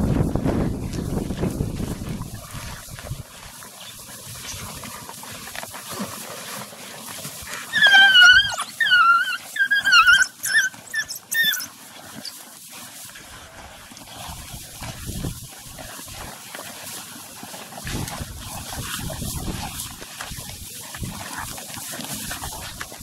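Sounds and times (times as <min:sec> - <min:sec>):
low rustle at carcass: 0:00.0 - 0:23.0
wild dogs high-pitched calls: 0:07.6 - 0:12.4.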